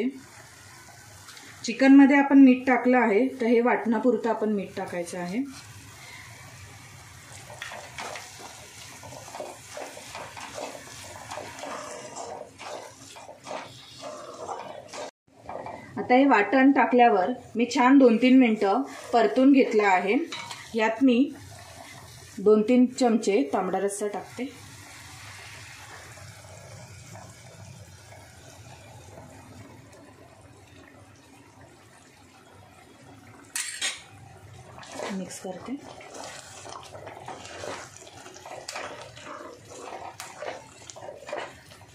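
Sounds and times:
broth sizzling in hot pan: 0.0s - 41.9s
spatula scraping frying paste: 5.2s - 6.2s, 7.3s - 15.9s, 18.5s - 20.8s, 34.7s - 41.9s.

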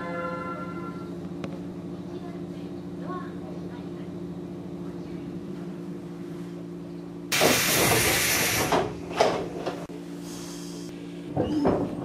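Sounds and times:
electric train humming: 0.0s - 11.4s
compressed air hissing: 7.3s - 8.8s.

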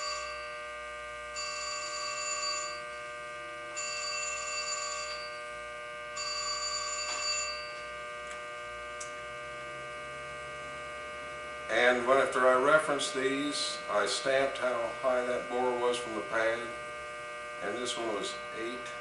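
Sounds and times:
telephone ringing: 0.0s - 0.6s, 1.3s - 3.0s, 3.7s - 8.0s
electrical hum: 0.0s - 19.0s.

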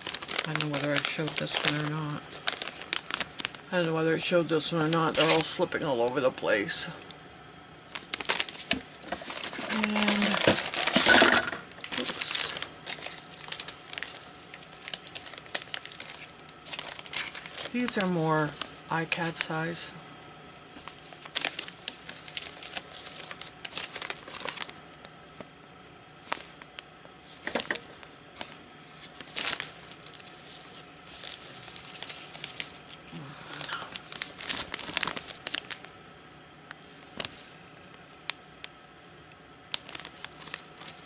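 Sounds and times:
plastic bags crinkling: 0.0s - 6.9s, 7.9s - 19.8s, 20.7s - 25.4s, 26.2s - 26.6s, 27.3s - 36.0s, 39.7s - 41.0s
small crackles and clicks: 36.6s - 41.0s.

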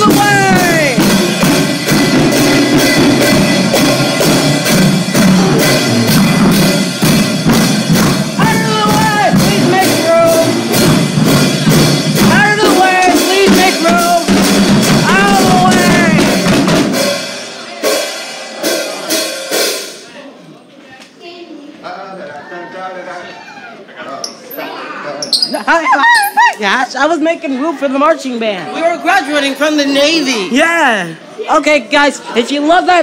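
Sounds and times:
marching band playing: 0.0s - 20.1s
drums beating steady rhythm: 0.0s - 20.3s.

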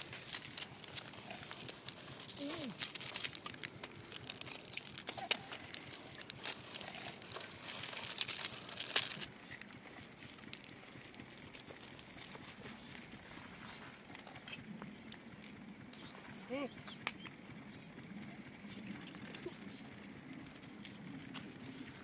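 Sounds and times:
foil sachets crinkling: 0.0s - 14.3s
bird chirping: 11.0s - 20.0s.

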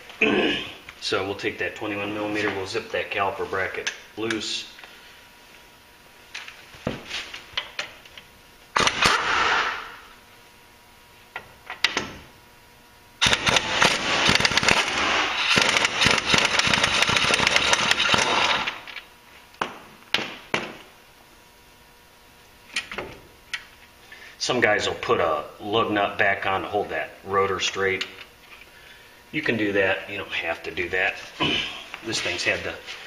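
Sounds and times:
impact wrench hammering: 8.8s - 10.0s, 13.2s - 18.8s.

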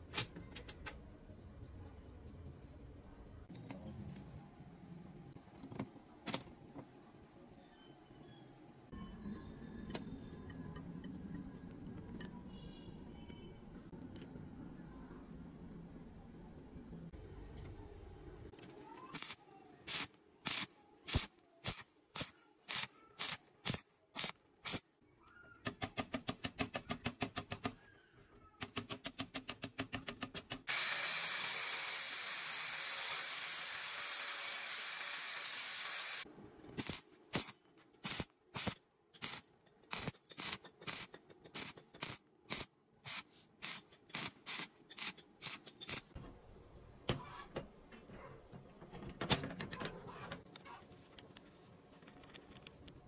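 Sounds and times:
angle grinder grinding steel: 30.7s - 36.2s.

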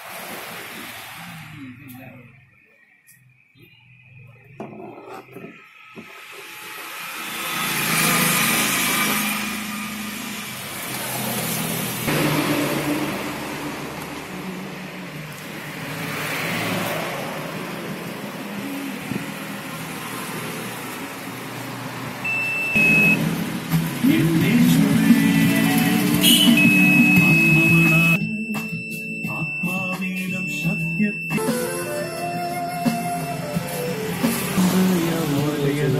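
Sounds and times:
high-pitched beep: 22.2s - 23.2s, 26.1s - 32.3s.

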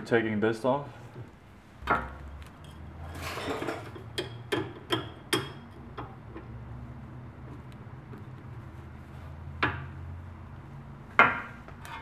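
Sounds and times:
metal scrape: 2.7s - 3.9s.

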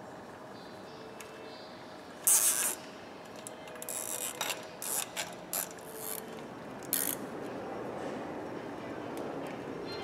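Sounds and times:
ratchet clicking: 2.3s - 2.8s, 3.8s - 6.2s, 6.9s - 7.2s.

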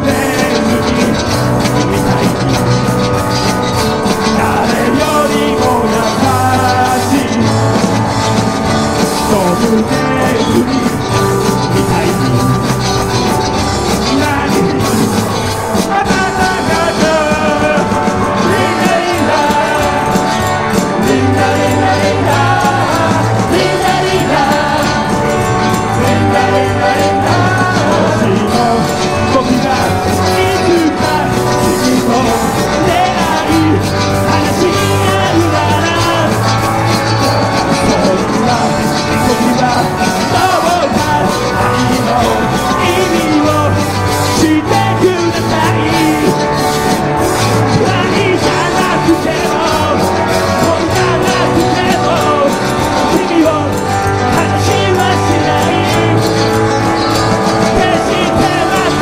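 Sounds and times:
bass: 0.0s - 59.0s
drums: 0.0s - 59.0s
electric guitars: 0.0s - 59.0s
man singing: 0.0s - 59.0s.

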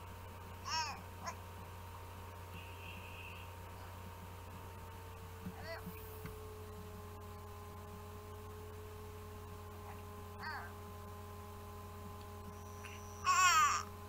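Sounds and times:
steady electrical hum: 0.0s - 14.0s
infant cooing: 0.6s - 1.4s, 5.6s - 5.9s, 13.2s - 13.9s.

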